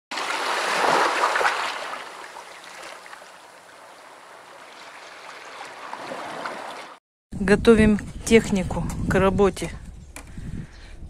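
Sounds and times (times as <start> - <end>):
waves washing over pebbles: 0.1 - 7.0.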